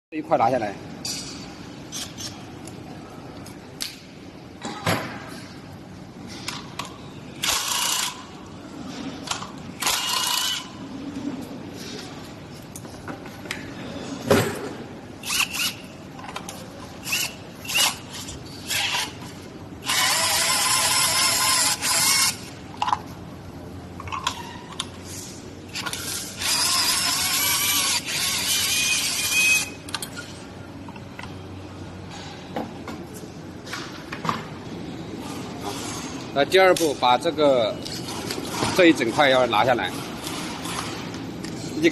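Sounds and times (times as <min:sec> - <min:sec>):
cordless drill spinning: 0:19.8 - 0:22.3, 0:26.1 - 0:29.6.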